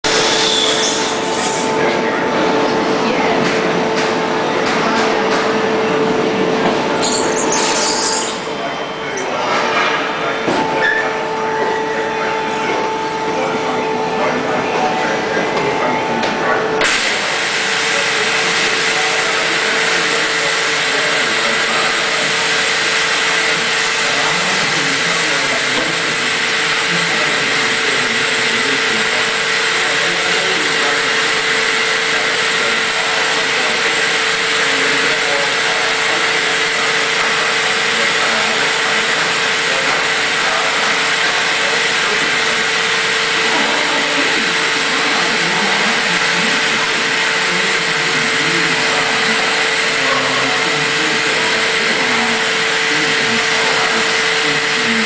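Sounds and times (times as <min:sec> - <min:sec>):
constant machine hum: 0:00.0 - 0:55.0
vacuum switching on: 0:16.8 - 0:22.6.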